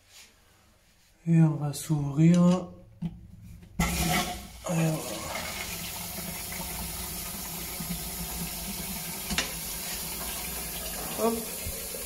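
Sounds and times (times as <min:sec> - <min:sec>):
water rushing into a cistern: 0:03.8 - 0:12.0.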